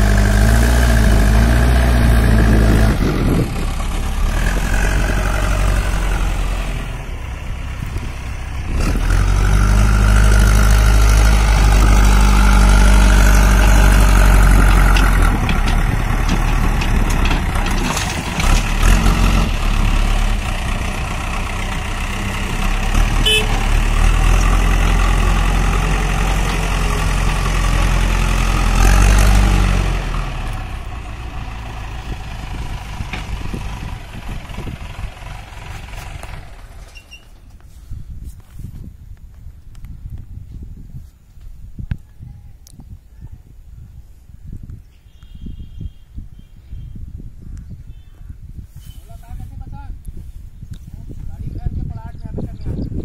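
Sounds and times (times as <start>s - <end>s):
diesel engine revving under load: 0.0s - 37.6s.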